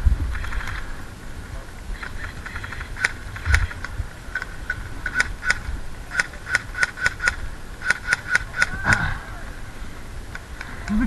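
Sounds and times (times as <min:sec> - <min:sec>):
airsoft gun shots: 0:05.0 - 0:09.1.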